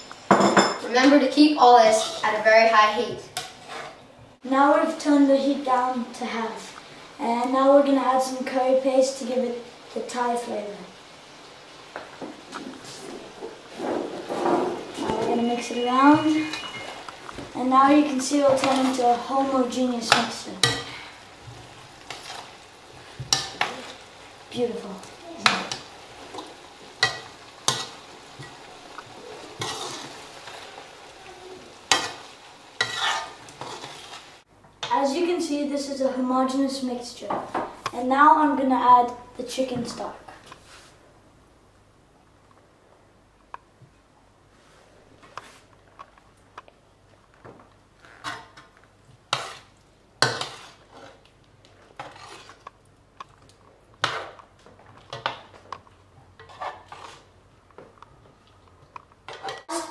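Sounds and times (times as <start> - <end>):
curry sizzling in a pan: 0.0 - 40.8, 47.1 - 59.9
utensil scraping a pan: 3.4 - 4.0, 12.6 - 15.4, 22.0 - 24.0, 25.4 - 30.8, 31.9 - 34.4, 49.3 - 52.6, 56.4 - 57.4.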